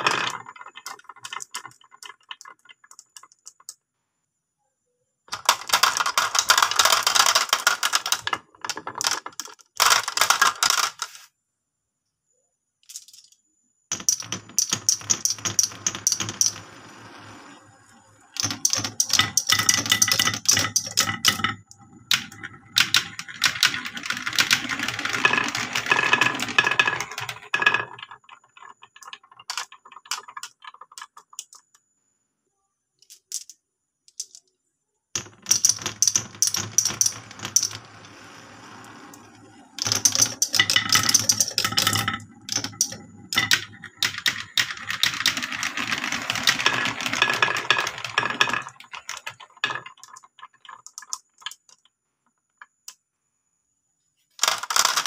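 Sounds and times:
glass marbles clattering on a run: 0.0 - 3.7, 5.4 - 11.0, 13.9 - 31.7, 35.2 - 51.8.

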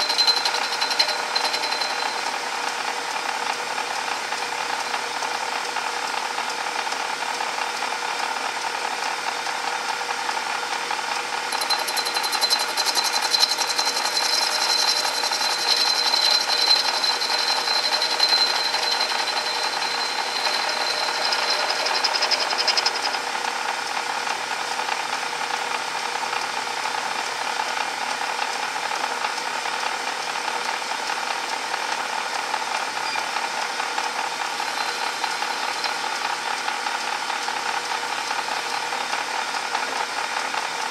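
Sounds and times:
high-pitched cutting whine: 0.0 - 3.0, 11.5 - 24.4, 34.5 - 36.6
bench lathe running: 0.0 - 40.9.

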